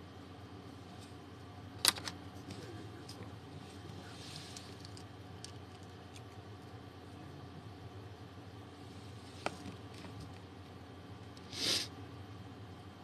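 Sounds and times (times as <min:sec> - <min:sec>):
soft breathy hiss: 0:11.4 - 0:12.0.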